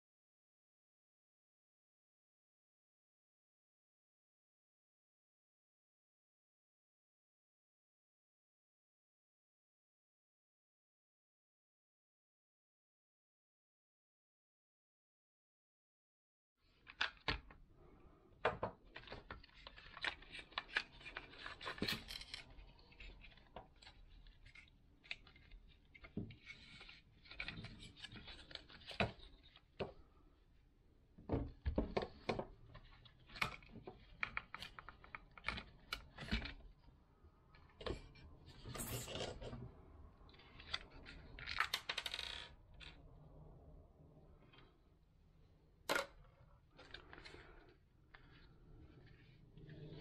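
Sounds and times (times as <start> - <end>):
brief scraping: 38.5 - 39.6.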